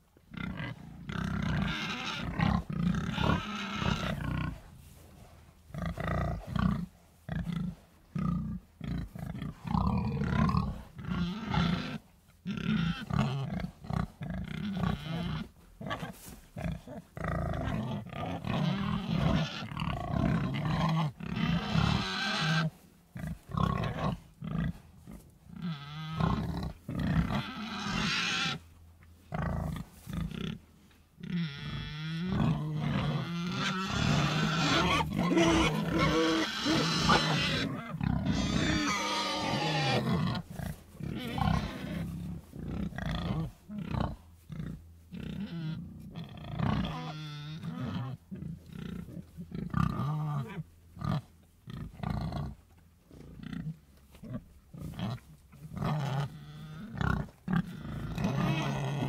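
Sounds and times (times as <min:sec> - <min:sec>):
pigs grunting: 0:00.3 - 0:04.6, 0:05.7 - 0:28.7, 0:29.3 - 0:59.0
pigs squealing: 0:00.4 - 0:04.5, 0:10.5 - 0:13.6, 0:14.5 - 0:15.5, 0:17.6 - 0:22.7, 0:25.6 - 0:26.6, 0:27.2 - 0:28.6, 0:31.2 - 0:40.5, 0:41.1 - 0:42.1, 0:45.2 - 0:48.2, 0:55.8 - 0:59.0.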